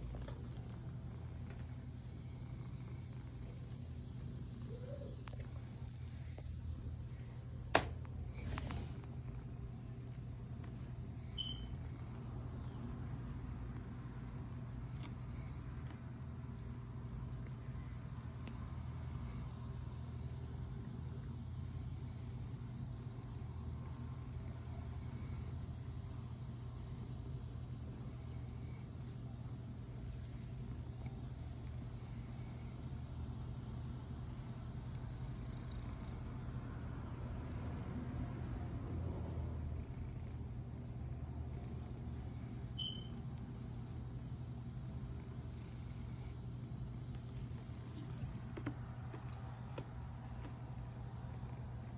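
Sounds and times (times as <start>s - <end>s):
cat purring: 0.0s - 6.1s.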